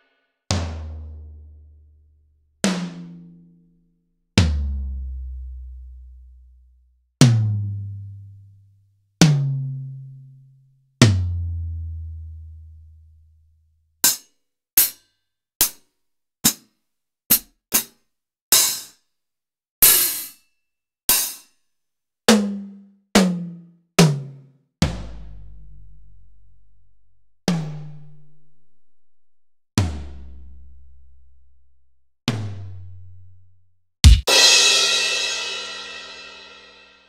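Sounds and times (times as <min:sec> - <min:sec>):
short sharp drum hits: 0:34.1 - 0:36.1.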